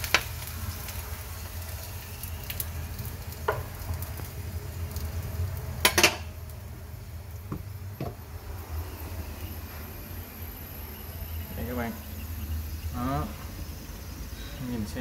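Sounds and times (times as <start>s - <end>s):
frying oil sizzling: 0.0s - 15.0s
low steady hum: 0.4s - 15.0s
metal utensils clinking cookware: 5.8s - 6.3s.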